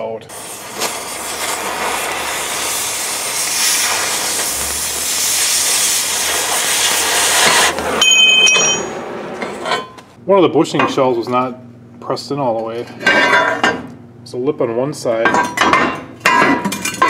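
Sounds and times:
cutting torch hissing: 0.0 - 9.2
high ringing tone: 8.0 - 9.1.

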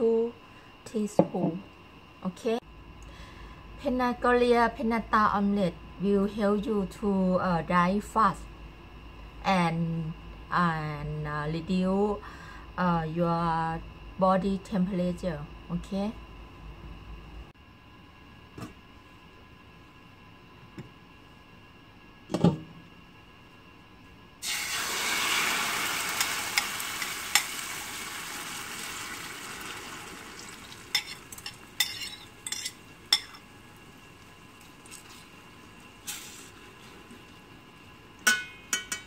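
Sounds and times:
egg sizzling in hot pan: 24.4 - 38.9
metal spoon scraping pan: 31.0 - 33.4.

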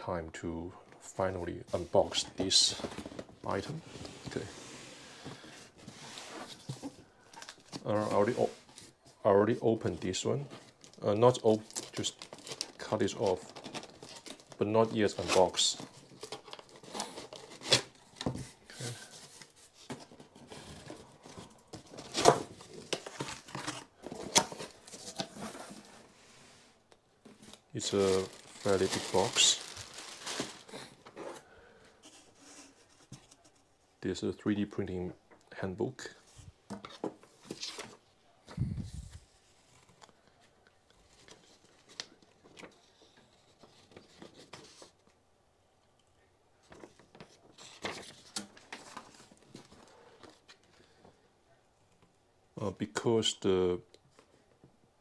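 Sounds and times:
paper rustling: 27.2 - 31.4, 46.6 - 50.7.

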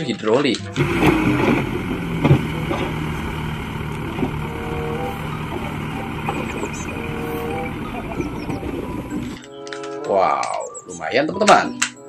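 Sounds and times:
diesel truck engine running: 0.8 - 9.4
hydraulic hoist tipping: 0.8 - 9.4
soil dumping: 0.8 - 9.4.

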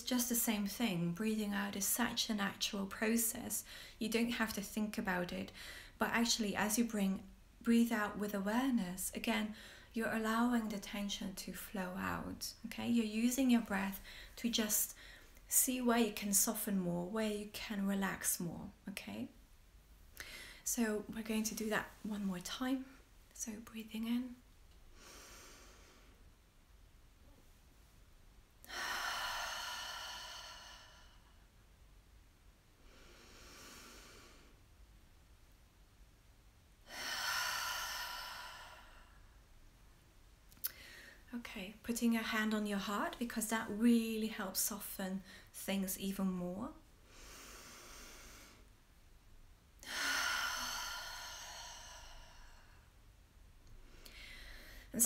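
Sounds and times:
woman exhaling slowly: 28.6 - 31.4, 36.9 - 39.4, 49.8 - 52.9.

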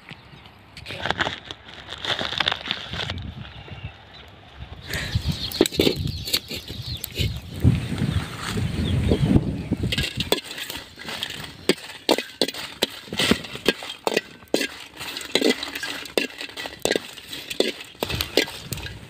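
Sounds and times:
ladle clinking against a wok: 9.9 - 19.0.

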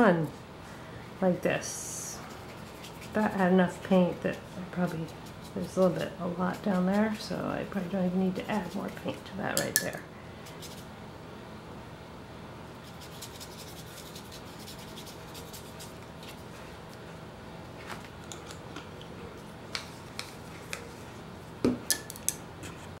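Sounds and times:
paintbrush rubbing on paper: 2.2 - 3.4, 4.3 - 9.2, 12.8 - 16.7.

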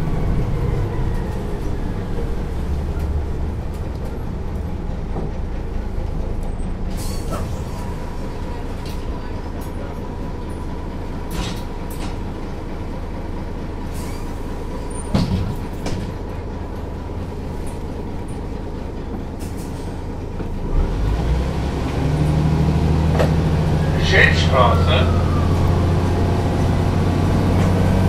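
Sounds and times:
bus diesel engine running: 0.0 - 28.0.

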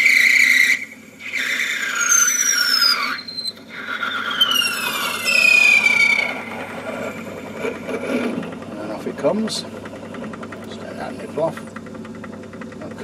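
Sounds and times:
lathe parting tool squealing: 0.0 - 9.5
lathe humming: 0.0 - 13.0.

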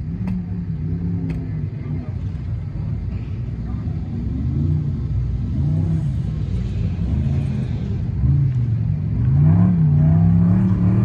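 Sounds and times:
race vehicle engine revving: 3.7 - 11.0.

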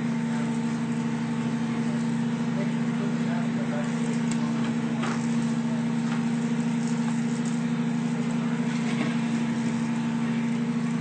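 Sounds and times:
insulation blowing machine humming: 0.0 - 11.0.

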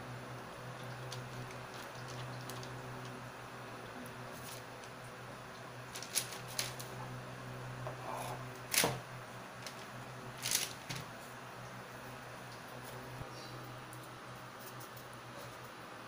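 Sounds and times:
steady low hum: 0.0 - 16.0
plastic sheet crinkling: 5.9 - 7.0, 9.6 - 11.1.

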